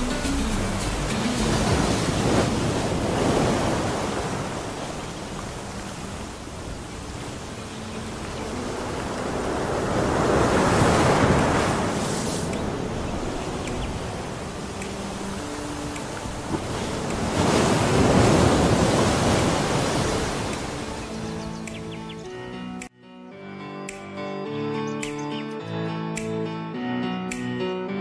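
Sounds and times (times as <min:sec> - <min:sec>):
water rushing along boat hull: 0:00.0 - 0:21.9.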